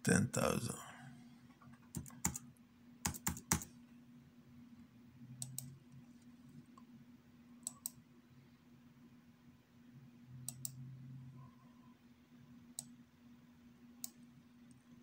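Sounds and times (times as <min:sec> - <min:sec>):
faint steady hum: 0:00.0 - 0:15.0
keyboard keystrokes: 0:01.8 - 0:02.4, 0:03.0 - 0:03.7
mouse clicks: 0:05.4 - 0:05.7, 0:07.6 - 0:08.0, 0:10.5 - 0:10.8.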